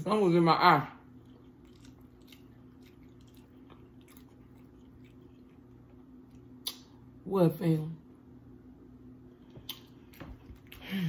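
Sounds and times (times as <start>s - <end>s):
low steady hum: 0.0s - 11.0s
person chewing food: 1.0s - 7.0s, 9.4s - 11.0s.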